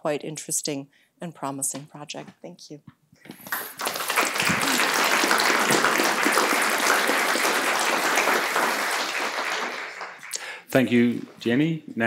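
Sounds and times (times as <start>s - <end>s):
audience applauding: 3.4s - 10.6s.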